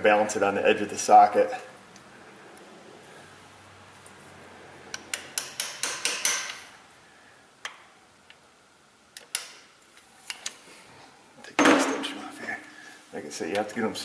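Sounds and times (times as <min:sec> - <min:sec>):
hammer tapping metal socket: 0:04.9 - 0:06.6.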